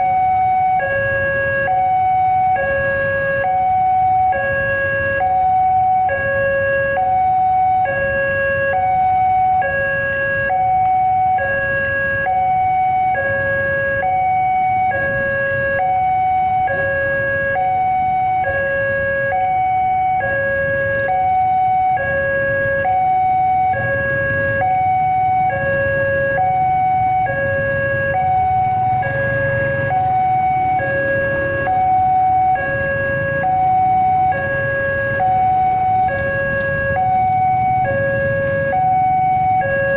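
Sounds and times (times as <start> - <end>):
level crossing two-tone alarm: 0.0 - 39.9
motorcycle engines idling: 23.7 - 39.9.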